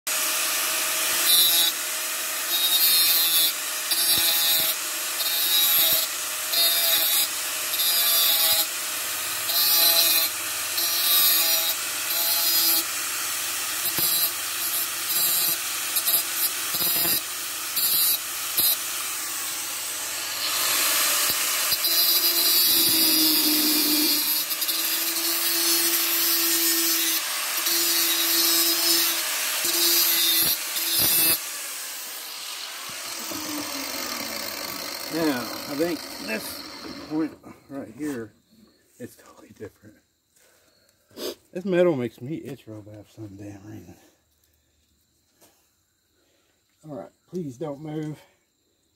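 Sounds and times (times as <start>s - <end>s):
angle grinder grinding metal pipe: 0.1s - 38.2s
grinder motor whine: 6.7s - 37.4s.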